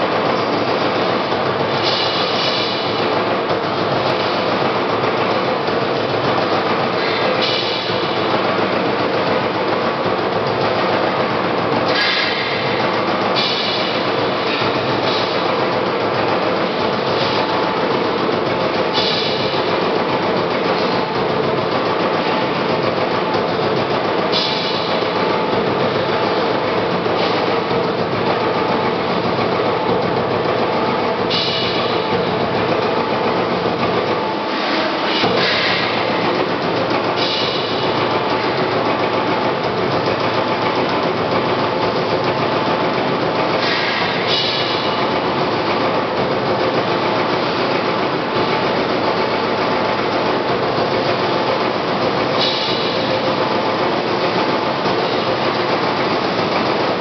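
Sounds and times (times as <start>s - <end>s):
punch press hitting sheet metal: 34.6s - 36.2s.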